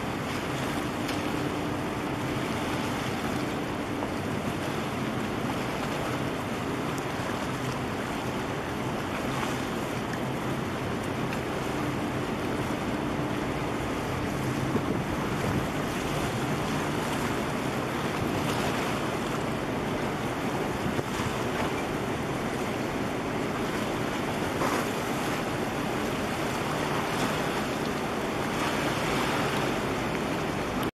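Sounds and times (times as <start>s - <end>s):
water lapping: 0.0s - 30.9s
wind on microphone: 14.2s - 19.0s, 20.2s - 21.7s.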